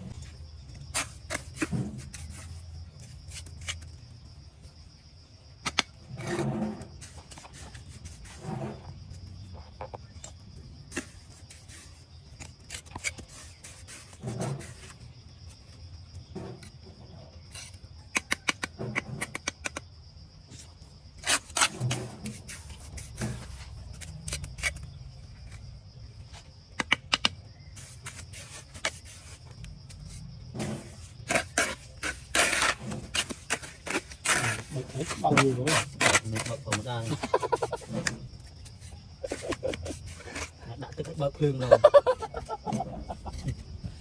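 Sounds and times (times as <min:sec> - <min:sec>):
trowel scraping mortar: 0:00.7 - 0:04.1, 0:05.6 - 0:09.3, 0:10.2 - 0:15.1, 0:16.4 - 0:19.8, 0:21.1 - 0:25.6, 0:27.8 - 0:43.6
trowel tapping on bricks: 0:18.1 - 0:19.8.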